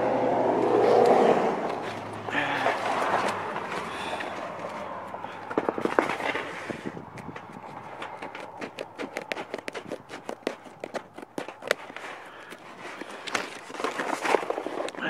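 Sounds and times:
plastic sheet rustling: 10.6 - 15.0.

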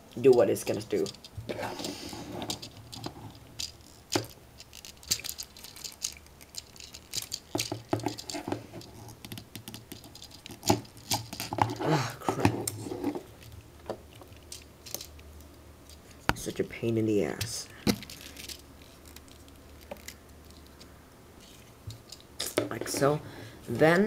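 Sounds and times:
plastic toy parts clicking: 0.2 - 1.6, 2.4 - 11.8, 13.4 - 16.4, 17.3 - 22.6.

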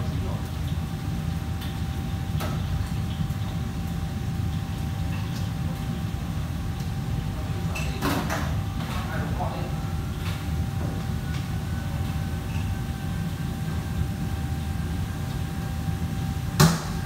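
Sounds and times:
faint constant hum: 0.0 - 17.0.

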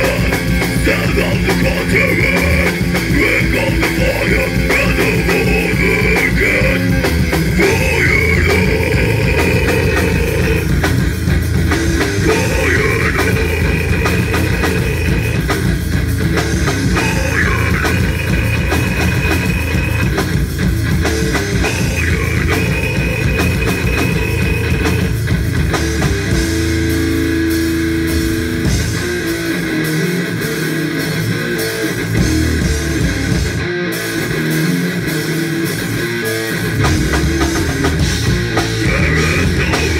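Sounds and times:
person singing: 0.0 - 10.9, 12.1 - 15.6, 16.8 - 20.1, 21.5 - 25.0, 38.6 - 39.9
heavy rock band playing live: 0.0 - 39.9.

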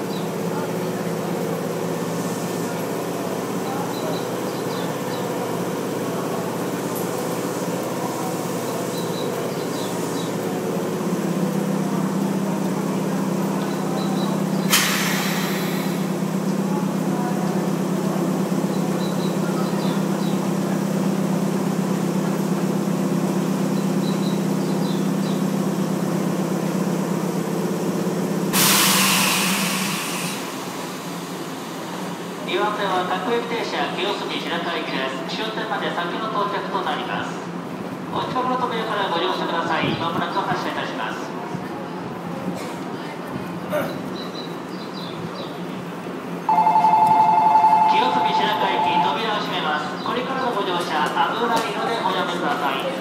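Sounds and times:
electric train equipment humming: 0.0 - 33.4, 44.5 - 51.2
air brakes hissing: 14.6 - 16.2, 28.5 - 30.9.

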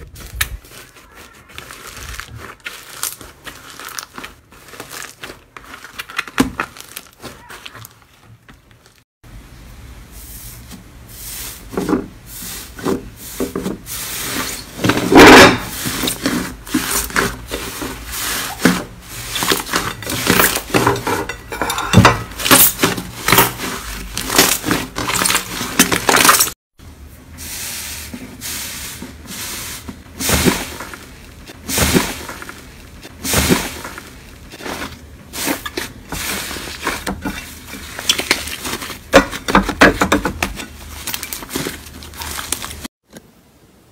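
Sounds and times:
hands kneading crackling slime: 0.0 - 9.0, 40.8 - 42.9.

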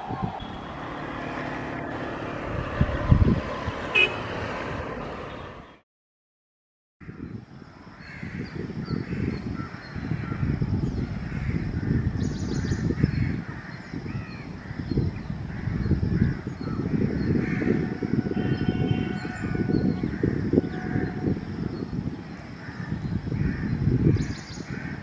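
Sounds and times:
crows cawing: 8.0 - 10.6, 15.5 - 17.8, 22.6 - 25.0.

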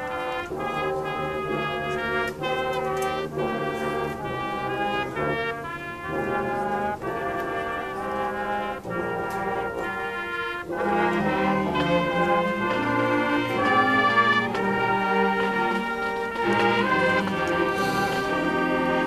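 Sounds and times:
brass band playing held chords: 0.0 - 19.0.

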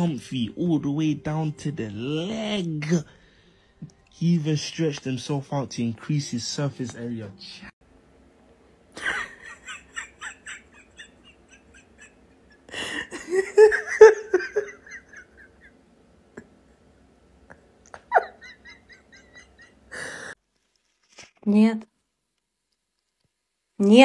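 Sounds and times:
person laughing: 9.0 - 15.8, 17.9 - 20.3.

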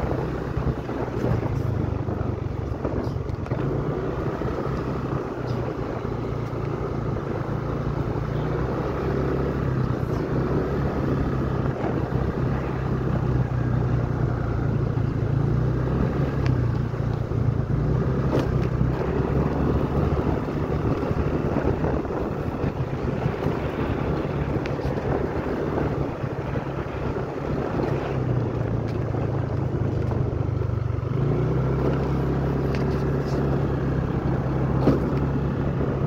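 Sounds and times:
small vehicle engine running: 0.0 - 36.0
wind rushing over microphone: 0.0 - 36.0.

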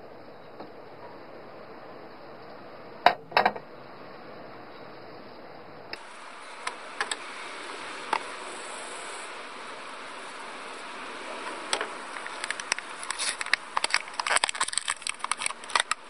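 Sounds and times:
steady background noise: 0.0 - 16.0
small hard parts clicking: 11.6 - 16.0.

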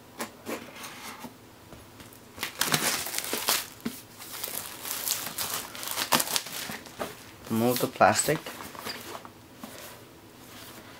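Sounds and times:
plastic shrink wrap tearing: 2.4 - 8.5.

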